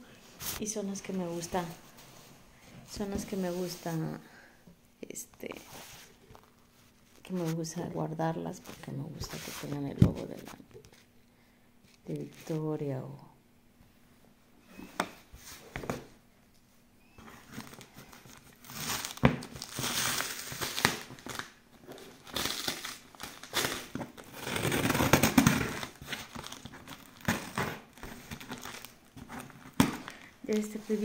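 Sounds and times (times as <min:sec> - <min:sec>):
packing tape tearing off cardboard: 0:17.2 - 0:31.0.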